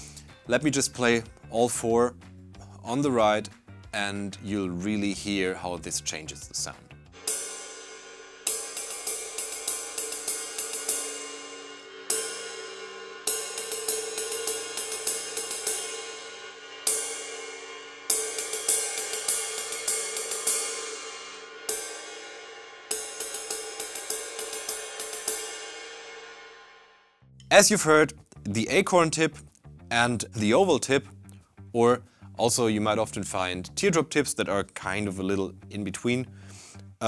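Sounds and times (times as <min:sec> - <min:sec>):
ride cymbal struck with sticks: 0:06.6 - 0:27.1.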